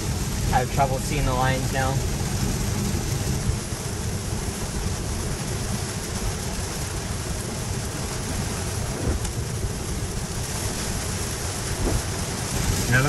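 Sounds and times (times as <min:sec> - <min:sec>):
heavy rain on a car: 0:00.0 - 0:13.0
tyres on a wet road: 0:00.0 - 0:13.0.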